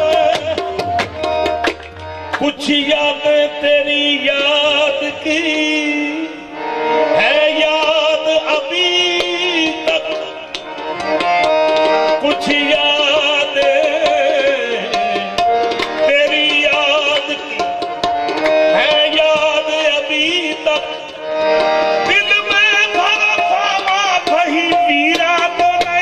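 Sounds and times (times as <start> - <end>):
tabla strokes: 0.0 - 2.8
harmonium: 0.0 - 26.0.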